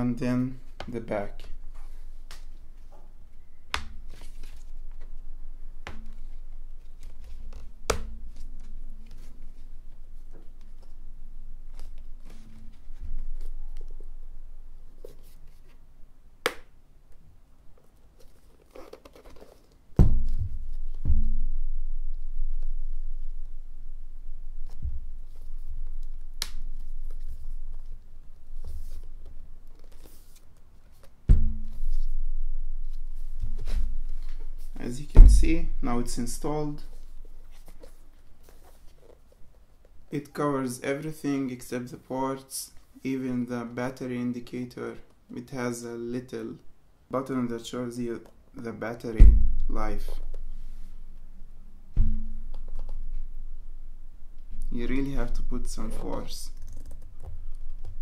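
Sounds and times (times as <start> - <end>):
heavy thump: 20.0 - 22.6, 31.3 - 37.1, 49.2 - 50.7, 51.9 - 54.7.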